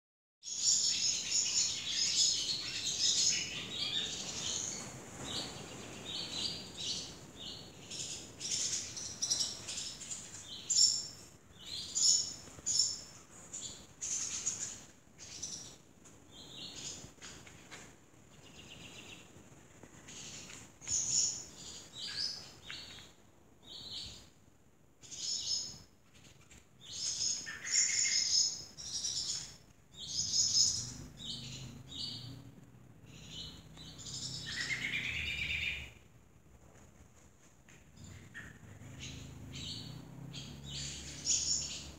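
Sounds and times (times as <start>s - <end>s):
swallows twittering: 26.9s - 32.4s, 33.1s - 35.9s, 38.0s - 41.9s.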